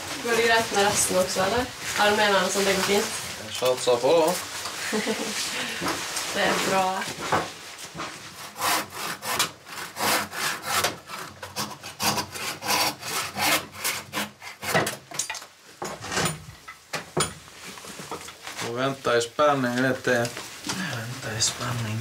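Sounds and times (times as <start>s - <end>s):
hand working wood strokes: 0.0s - 15.1s.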